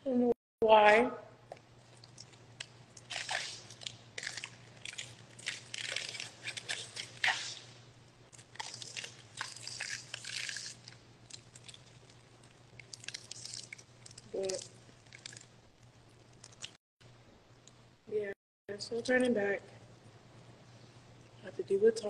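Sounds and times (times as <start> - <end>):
biting and chewing ice pop: 1.8 - 7.6, 8.3 - 14.3
crunching of frozen ice: 3.0 - 7.6, 8.4 - 12.2.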